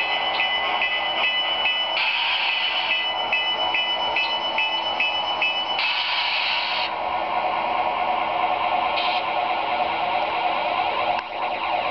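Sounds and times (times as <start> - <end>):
locomotive bell ringing: 0.0 - 6.0.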